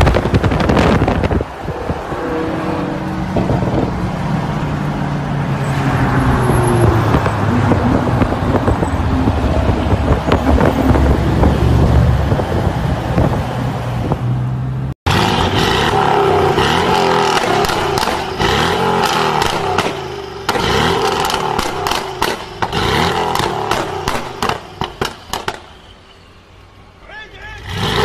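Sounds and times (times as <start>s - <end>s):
exhaust crackling and popping: 0.0s - 1.7s, 15.1s - 25.8s
car engine revving: 0.0s - 25.7s, 27.6s - 28.0s.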